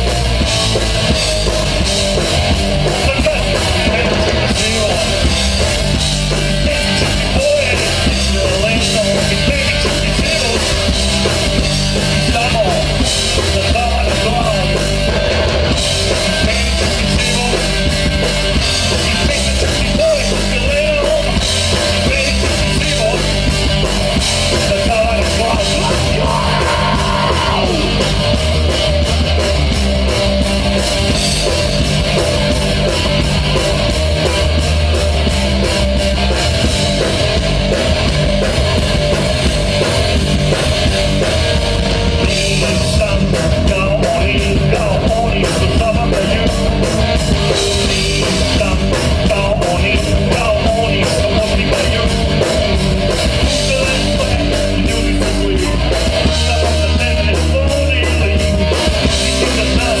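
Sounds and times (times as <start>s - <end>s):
live rock band playing: 0.0s - 60.0s
man singing: 2.8s - 5.4s, 6.2s - 11.0s, 12.0s - 14.9s, 16.1s - 23.5s, 24.4s - 28.5s, 42.2s - 60.0s.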